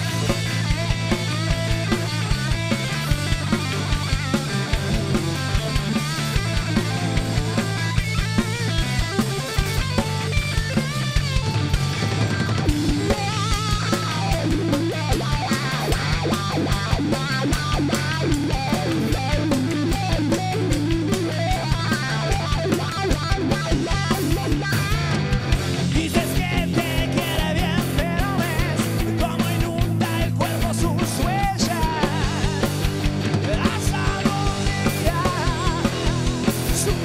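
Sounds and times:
drum kit beat: 0.0s - 37.0s
electric bass: 0.0s - 37.0s
electric guitar lead lines: 0.0s - 37.0s.

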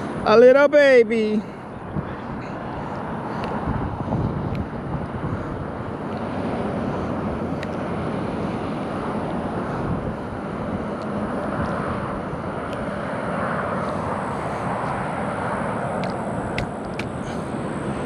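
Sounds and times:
highway traffic rushing: 0.0s - 18.0s
light ticks: 7.6s - 7.8s.

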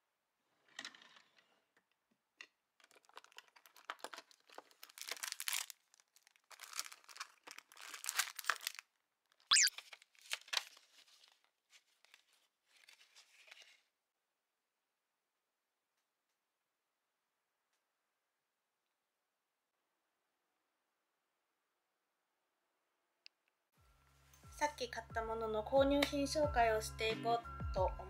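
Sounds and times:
plastic sleeves crinkling: 2.8s - 13.9s.

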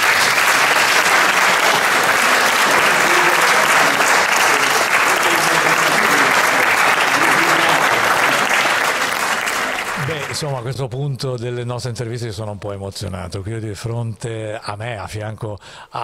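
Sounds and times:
audience applauding: 0.0s - 10.6s.

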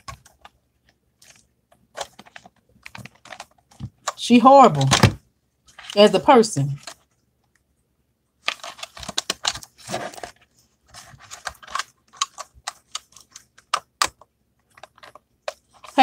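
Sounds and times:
fingernails clicking on plastic packaging: 2.0s - 4.2s, 8.4s - 9.8s, 11.1s - 16.0s.

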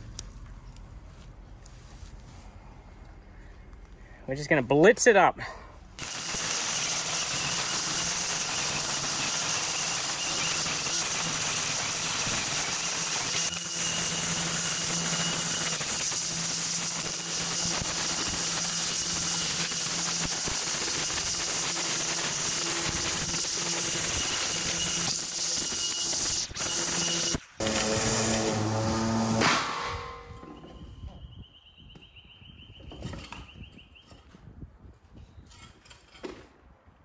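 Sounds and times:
string trimmer cutting grass: 6.0s - 29.6s.

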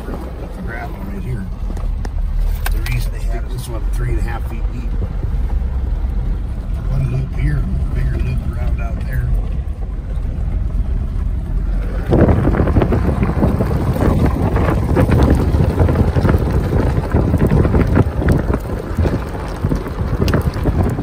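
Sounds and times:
crackles and knocks: 0.0s - 21.0s
vehicle engine rumble: 0.0s - 21.0s
wind buffeting microphone: 0.0s - 21.0s.

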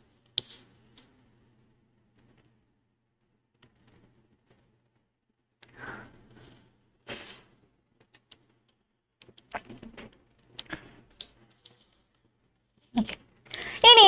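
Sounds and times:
soft breaths: 5.6s - 7.6s, 13.4s - 13.9s.

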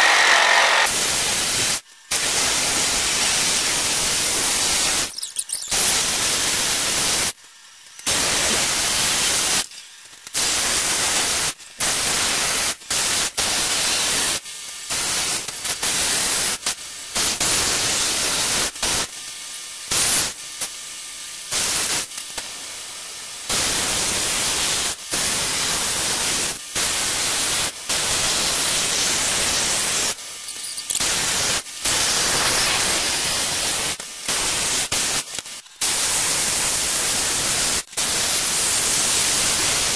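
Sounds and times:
electric jigsaw cutting wood: 0.0s - 1.0s.

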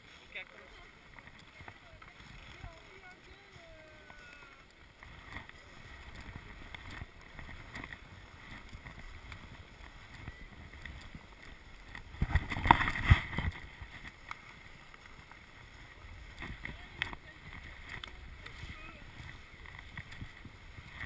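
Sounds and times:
skis scraping over snow: 0.0s - 21.0s
knocks and scrapes: 11.9s - 14.2s.

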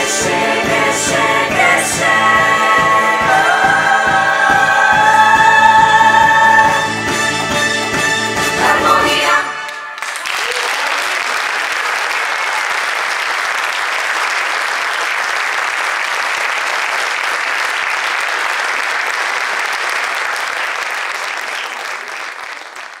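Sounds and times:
audience applauding: 8.6s - 23.0s.

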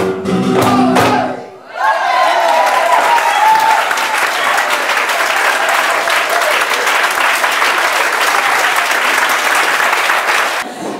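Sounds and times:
music: 0.0s - 1.5s
audience applauding: 2.1s - 10.7s.

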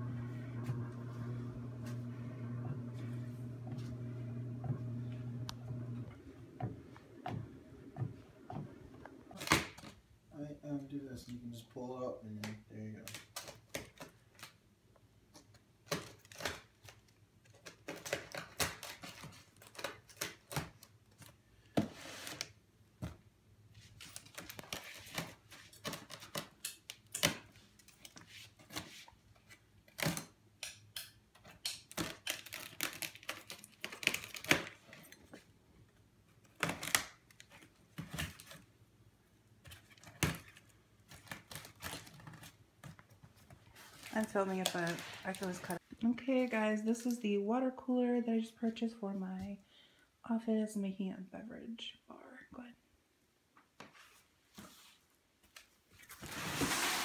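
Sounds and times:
plastic wrap crinkling: 31.8s - 34.9s, 39.8s - 45.8s.

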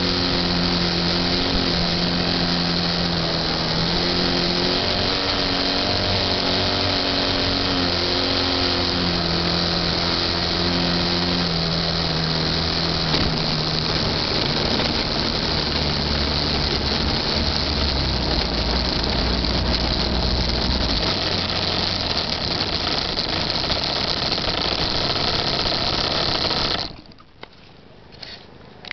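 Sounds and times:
wind noise on microphone: 0.0s - 27.0s
model airplane motor and propeller: 0.0s - 28.9s.

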